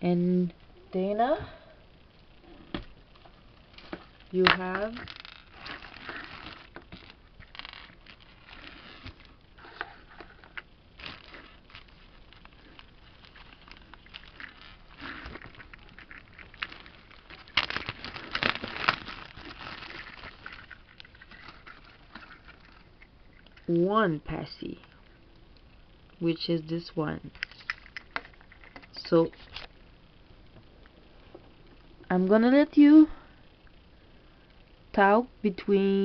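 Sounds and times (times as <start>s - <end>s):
plastic bag crinkling: 3.7s - 23.7s.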